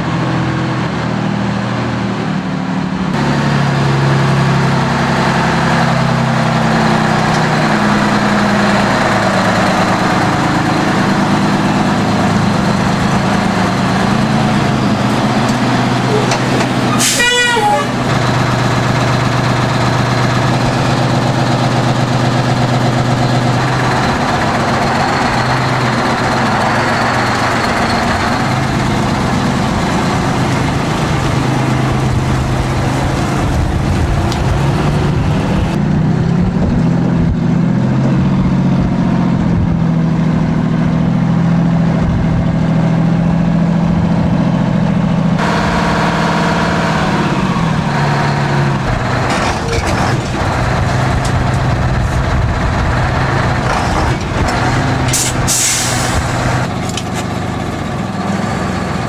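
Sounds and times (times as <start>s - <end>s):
diesel engine running under load: 0.0s - 59.0s.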